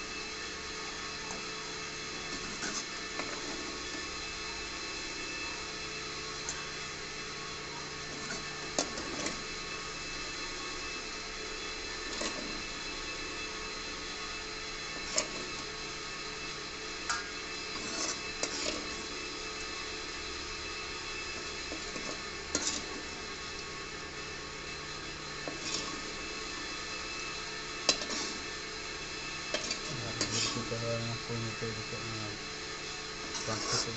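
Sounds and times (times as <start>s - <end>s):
curry sizzling in a pan: 0.0s - 33.9s
spoon scraping a pan: 1.2s - 4.1s, 8.0s - 9.5s, 12.0s - 12.7s, 14.9s - 15.7s, 17.1s - 19.3s, 21.4s - 23.7s, 25.4s - 28.6s, 29.4s - 30.8s, 33.2s - 33.9s.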